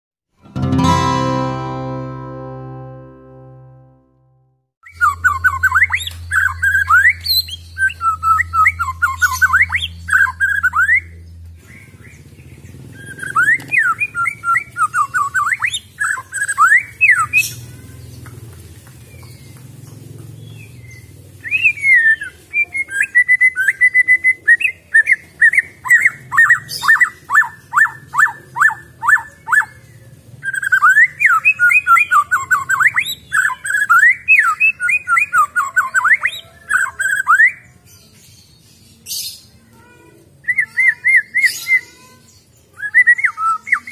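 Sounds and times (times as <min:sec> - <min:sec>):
bird singing whistled notes: 0:04.8 - 0:11.2, 0:42.8 - 0:43.9.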